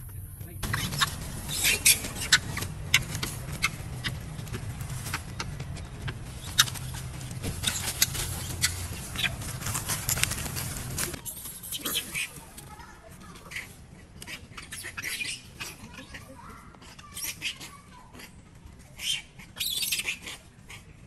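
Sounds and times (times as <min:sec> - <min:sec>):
steady low rumble: 0:00.0 - 0:11.2
leaves and twigs crackling: 0:00.0 - 0:16.5.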